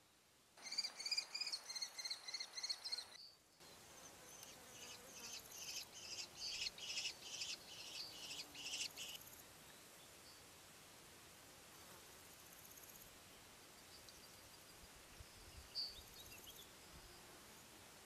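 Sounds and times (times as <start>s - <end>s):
kestrels calling shrilly: 0.6s - 3.2s.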